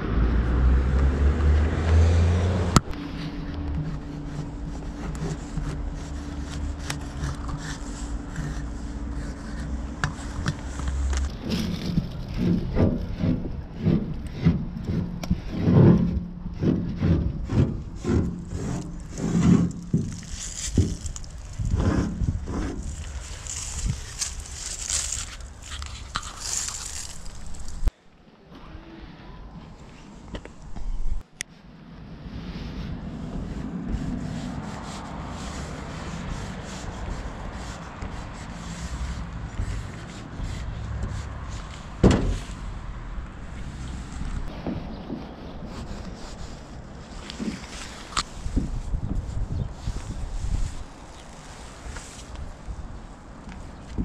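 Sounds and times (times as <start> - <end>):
paint marker scraping on rough wall: 1.4 - 27.9, 32.8 - 52.8
sharp thump: 42.0 - 42.6.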